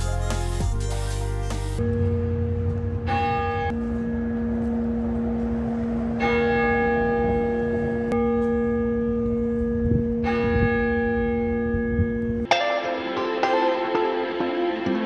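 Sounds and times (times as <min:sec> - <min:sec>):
guitar music: 0:00.0 - 0:01.8, 0:12.4 - 0:15.0
church bells ringing: 0:01.8 - 0:14.0.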